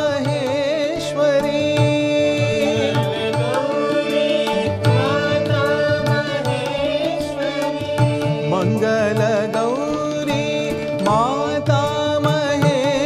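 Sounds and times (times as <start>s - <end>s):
harmonium: 0.0s - 13.0s
man singing devotional song: 0.0s - 13.0s
tabla drumming: 0.0s - 13.0s.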